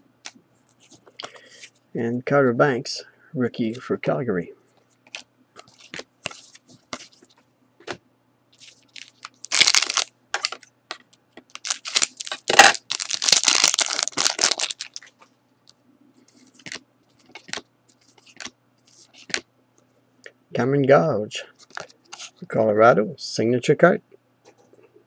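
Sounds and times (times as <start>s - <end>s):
cards clicking and rustling: 5.0s - 8.0s, 8.6s - 15.3s, 16.3s - 19.4s
foil wrapper ripping: 8.6s - 10.1s, 11.5s - 15.1s
foil wrapper crinkling: 8.6s - 10.6s, 11.5s - 15.2s.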